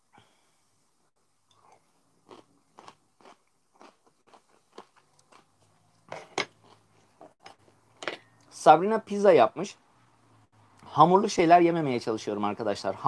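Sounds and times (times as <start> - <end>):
man chewing food: 1.5 - 8.0.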